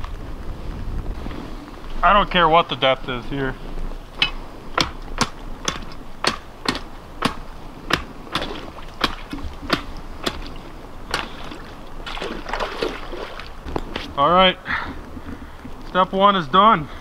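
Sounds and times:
ice bar striking ice: 4.2s - 10.5s.

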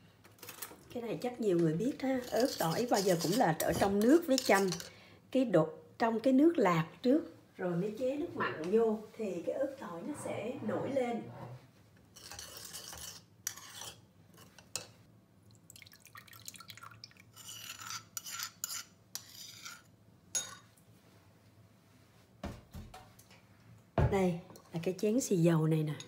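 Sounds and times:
metal spoon scraping stone mortar: 2.1s - 4.9s, 12.2s - 14.8s, 17.4s - 20.6s.

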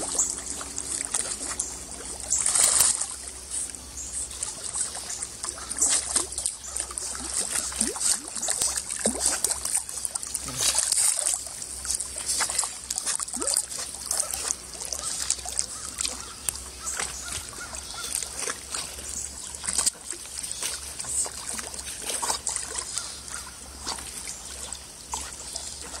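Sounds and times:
water splashing around swimming dog: 0.0s - 26.0s.

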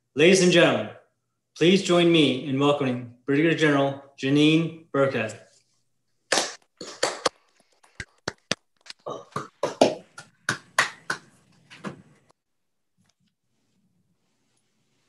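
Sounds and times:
scattered hand claps: 6.3s - 7.4s, 9.3s - 11.4s.

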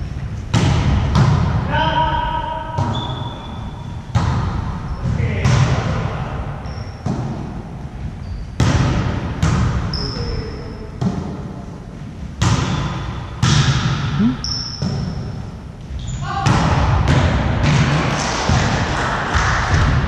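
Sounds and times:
volleyball slaps and thuds: 0.5s - 1.7s, 4.1s - 4.8s, 7.0s - 7.6s, 8.6s - 9.9s, 12.4s - 15.1s, 16.4s - 20.0s
sneaker squeaks on floor: 2.8s - 4.0s, 6.6s - 7.0s, 8.2s - 8.6s, 9.9s - 10.8s, 14.2s - 15.2s, 15.9s - 16.3s.

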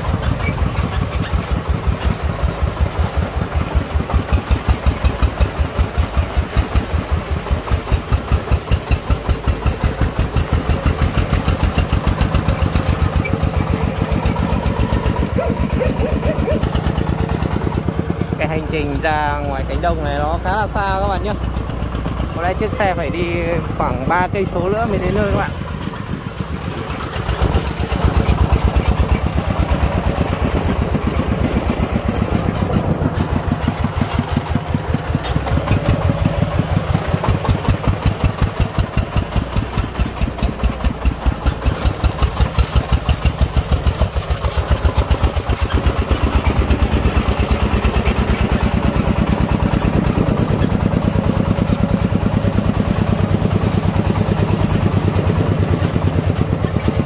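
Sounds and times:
diesel engine chugging: 0.0s - 57.0s.

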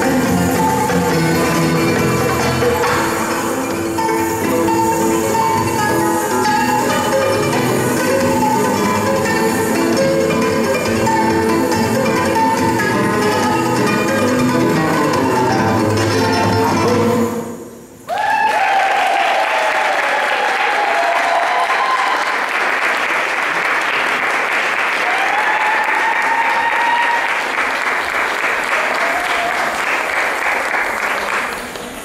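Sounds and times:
high whoops: 18.1s - 22.6s, 25.0s - 27.6s, 28.8s - 29.8s
audience applauding: 18.1s - 32.0s.

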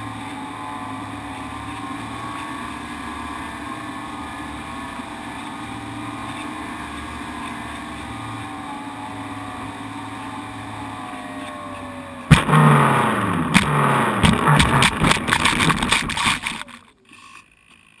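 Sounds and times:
electric motor and propeller whine: 0.0s - 18.0s
plane bumping onto grass: 13.4s - 16.8s
rattling and knocking: 13.5s - 16.8s.

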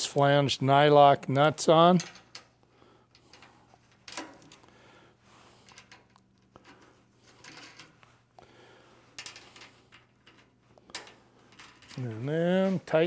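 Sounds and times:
nuts clicking and scraping: 2.0s - 4.8s, 5.4s - 8.5s, 9.1s - 12.3s.

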